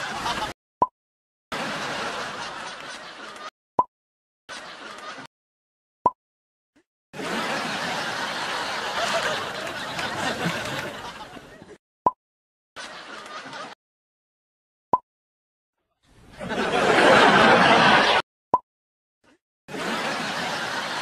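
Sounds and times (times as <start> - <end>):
laughter: 0.0 - 0.6, 1.6 - 3.5, 4.5 - 5.3, 7.2 - 11.8, 12.8 - 13.8, 16.3 - 18.2, 19.7 - 21.0.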